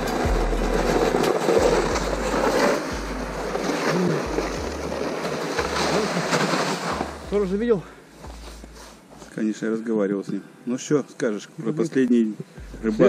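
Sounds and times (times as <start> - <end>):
sled scraping over snow: 0.0 - 9.0.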